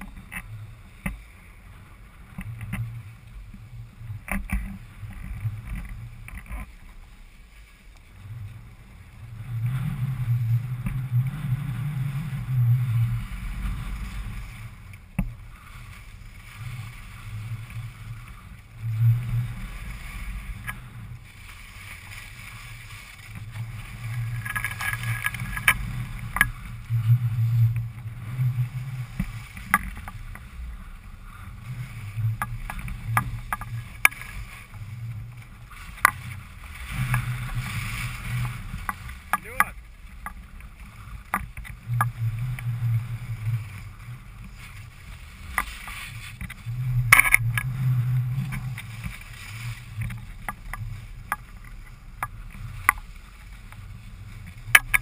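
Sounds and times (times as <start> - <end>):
low rumble: 0.0 - 55.0
skis scraping over snow: 0.0 - 55.0.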